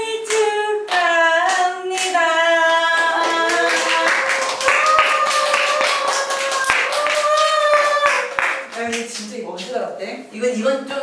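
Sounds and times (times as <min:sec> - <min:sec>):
woman singing long notes: 0:00.0 - 0:08.4
hand claps: 0:03.0 - 0:09.3.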